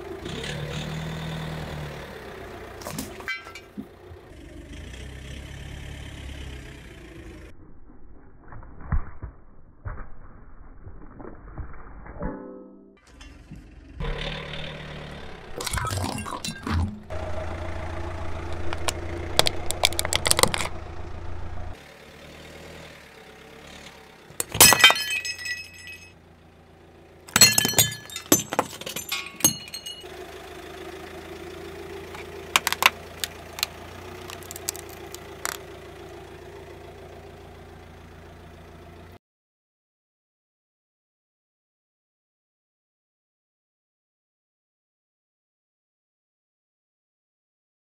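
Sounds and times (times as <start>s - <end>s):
low engine hum: 0.0s - 8.4s, 13.1s - 39.2s
tyre crushing ceramic objects: 2.9s - 3.9s, 18.7s - 20.8s, 24.4s - 26.1s, 27.3s - 30.1s, 32.2s - 35.6s.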